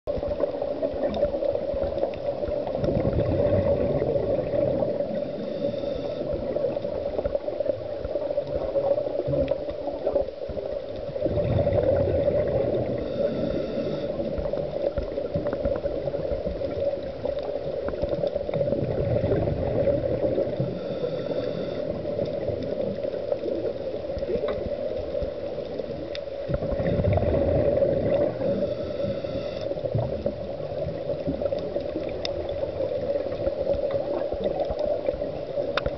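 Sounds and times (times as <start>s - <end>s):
exhaled bubbles underwater: 0.1s - 35.9s
steady hum: 3.2s - 6.6s, 11.6s - 14.4s, 19.3s - 22.5s, 26.1s - 30.3s
regulator hiss: 5.0s - 6.6s, 12.9s - 14.5s, 20.6s - 22.2s, 28.2s - 30.0s.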